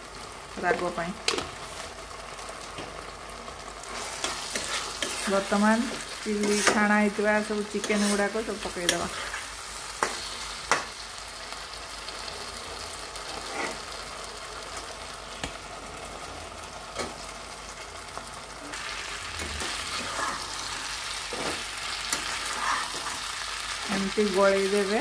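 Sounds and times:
sauce sizzling in a frying pan: 0.0s - 25.0s
spatula scraping a pan: 3.8s - 10.8s, 13.2s - 14.0s, 19.0s - 23.7s.

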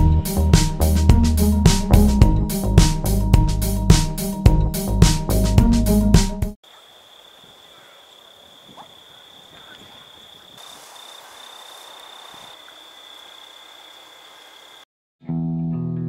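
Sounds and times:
faint outdoor ambience: 6.6s - 14.8s.

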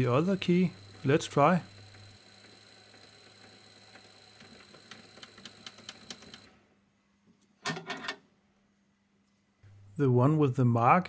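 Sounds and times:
lathe motor whine: 0.0s - 6.5s.

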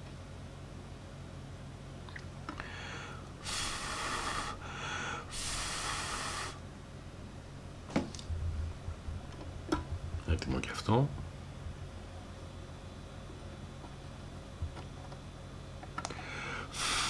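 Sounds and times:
person breathing out hard: 2.6s - 6.6s, 16.1s - 17.0s.

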